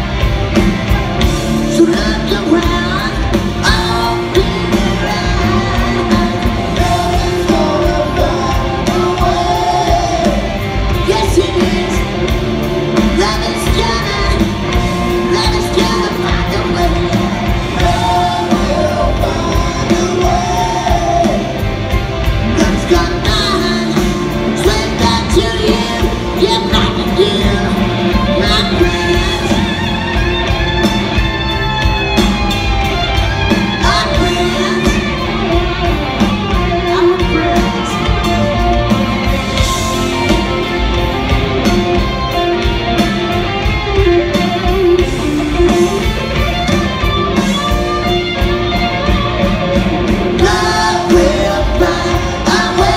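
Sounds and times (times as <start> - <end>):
live rock band playing: 0.0 - 52.9
lead vocals singing: 1.6 - 29.8, 33.6 - 35.6, 50.1 - 52.9.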